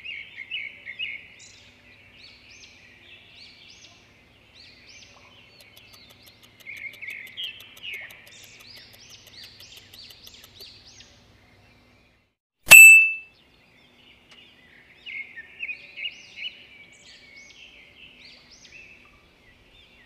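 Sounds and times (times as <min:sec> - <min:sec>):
small birds chirping: 0:00.0 - 0:20.0
loud bright ding: 0:12.7 - 0:13.2.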